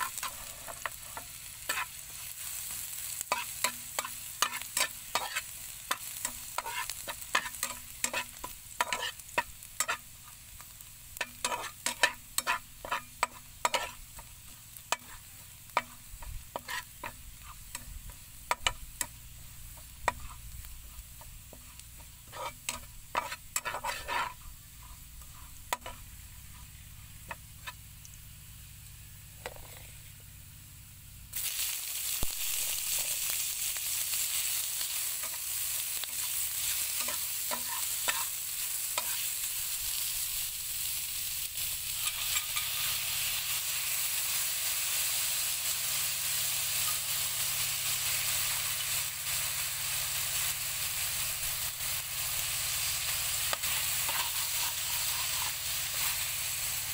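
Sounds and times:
metal spatula scraping pan: 0.0 - 2.0, 3.2 - 10.4, 11.2 - 14.3, 14.9 - 19.1, 19.8 - 27.8, 35.2 - 39.6, 41.9 - 43.2, 53.5 - 56.2
meat sizzling in hot oil: 0.0 - 29.0, 31.3 - 56.9
garlic frying quietly: 0.0 - 56.9.

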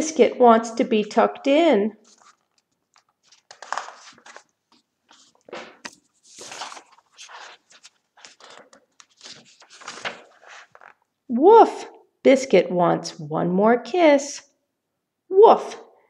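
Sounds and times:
paper rustles and scrapes: 2.0 - 11.0
book pages turning: 2.0 - 11.1.

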